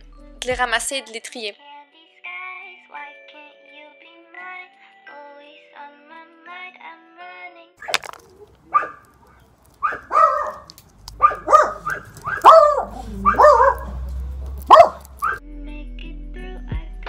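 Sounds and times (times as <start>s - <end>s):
small dog barking: 7.8s - 15.4s.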